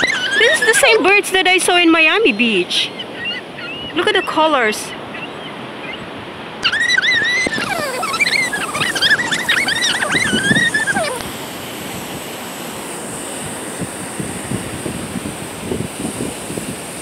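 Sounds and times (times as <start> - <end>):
terns calling: 0.0 - 11.3
wind: 0.0 - 17.0.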